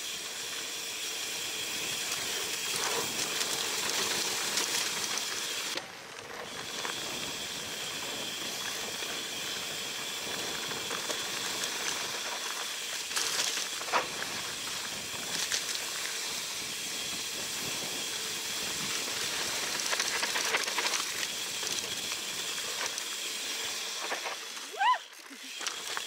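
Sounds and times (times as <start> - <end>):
tyres hissing on dirt: 0.0 - 26.0
bike rattling over bumps: 0.1 - 26.0
wind noise: 13.7 - 22.9.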